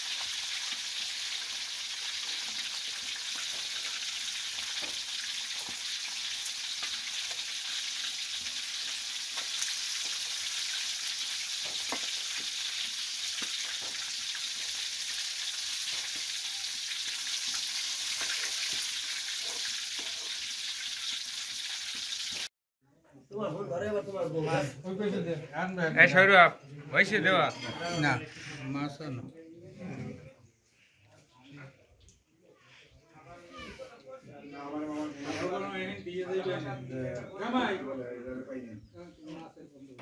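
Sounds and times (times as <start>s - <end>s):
hot oil sizzling: 0.0s - 22.5s.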